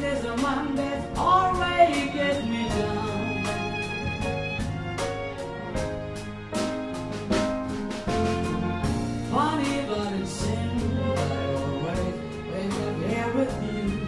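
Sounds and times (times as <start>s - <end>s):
jazz band with strings: 0.0s - 14.0s
sliding lead melody: 0.0s - 14.0s.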